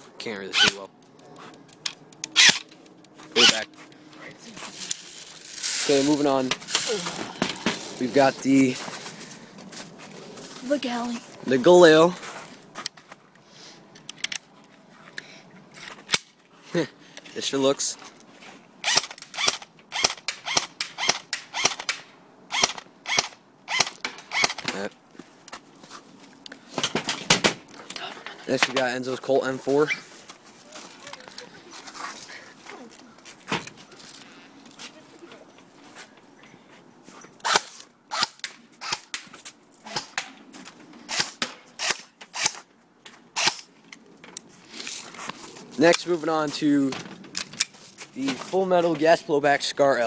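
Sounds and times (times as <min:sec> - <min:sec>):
airsoft rifle shots: 0:18.9 - 0:24.7.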